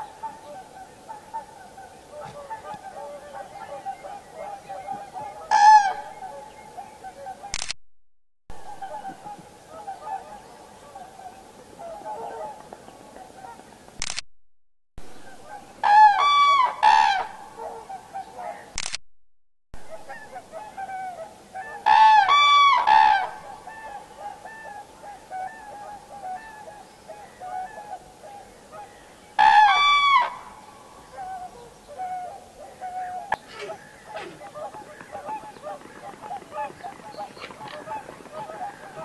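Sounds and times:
distant crane calls: 0:00.0 - 0:07.6, 0:08.6 - 0:13.7, 0:15.2 - 0:18.8, 0:19.9 - 0:39.0
cranes trumpeting: 0:00.4 - 0:06.3, 0:15.8 - 0:18.6, 0:20.1 - 0:26.8, 0:27.4 - 0:39.0.

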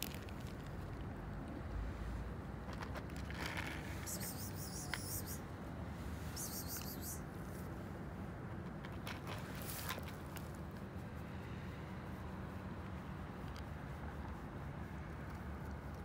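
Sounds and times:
cats crunching dry kibble: 0:00.0 - 0:01.4, 0:02.7 - 0:04.1, 0:08.6 - 0:10.7
low outdoor rumble: 0:00.0 - 0:16.0.

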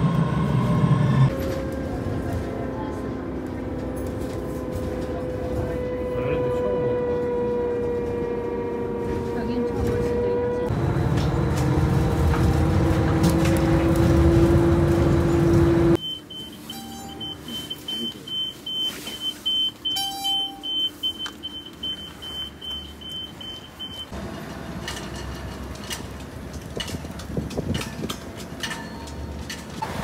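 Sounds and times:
bus engine and road noise: 0:00.0 - 0:30.0
card reader low beeps: 0:16.0 - 0:24.1.

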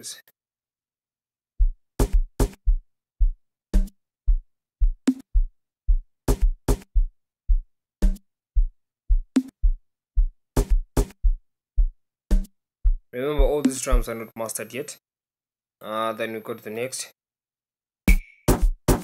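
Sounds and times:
deep kick drum: 0:01.6 - 0:14.1
clap and percussion hits: 0:10.6 - 0:11.2, 0:18.1 - 0:19.0.

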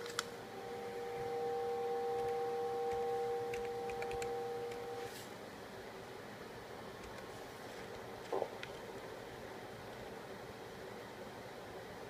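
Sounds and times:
keyboard clicks: 0:02.2 - 0:04.9.

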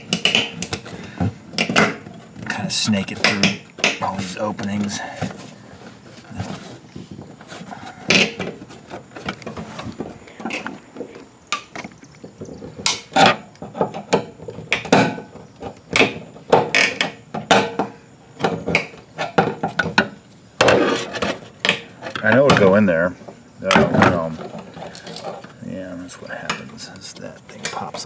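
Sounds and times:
parts knocking against metal tank: 0:00.0 - 0:05.4, 0:07.8 - 0:22.9.

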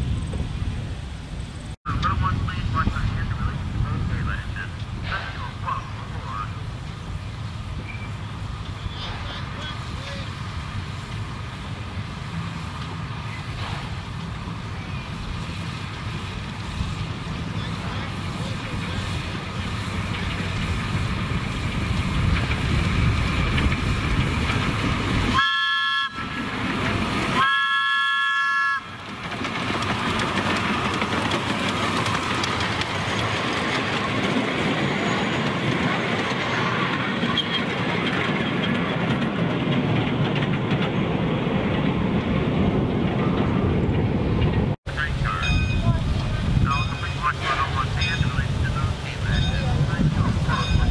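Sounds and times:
steam locomotive running past: 0:00.0 - 0:50.9
wheels clacking on rail joints: 0:07.8 - 0:50.9
steam whistle blasts: 0:25.3 - 0:26.5, 0:27.4 - 0:29.0.

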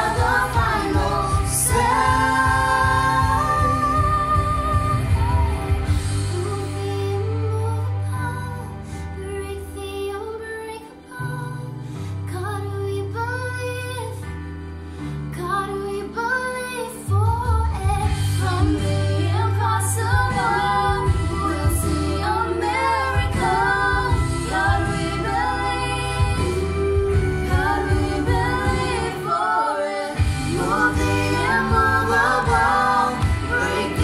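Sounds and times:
children singing in harmony: 0:00.0 - 0:05.1, 0:27.4 - 0:34.0.

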